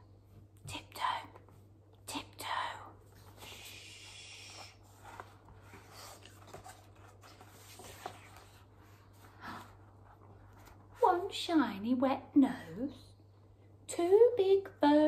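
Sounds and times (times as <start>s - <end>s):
faint low hum: 0.0s - 15.0s
soft hiss: 0.6s - 9.2s
book pages rustling: 4.5s - 11.3s.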